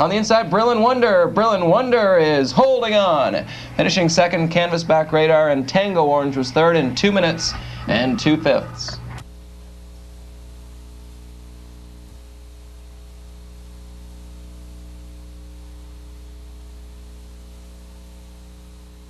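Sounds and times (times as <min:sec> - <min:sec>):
even hiss: 0:00.0 - 0:09.2
electrical hum: 0:00.0 - 0:19.0.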